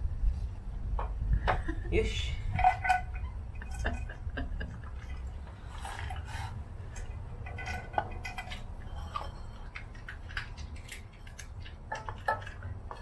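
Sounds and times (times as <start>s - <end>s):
low steady rumble: 0.0s - 13.0s
dog eating kibble from plastic bowl: 4.8s - 13.0s.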